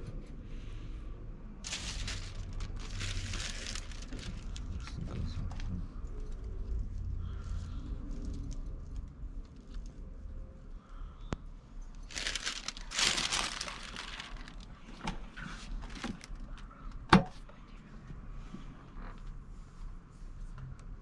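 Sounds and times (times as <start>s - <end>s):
paper crinkling: 1.6s - 7.5s, 12.0s - 16.7s.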